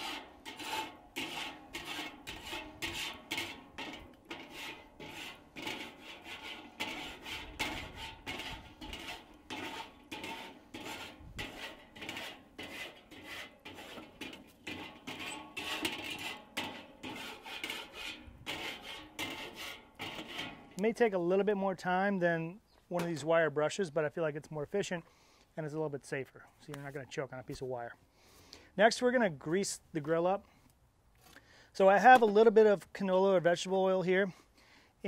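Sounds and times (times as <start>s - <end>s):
grill scraper rasping on grate: 0.0s - 20.8s.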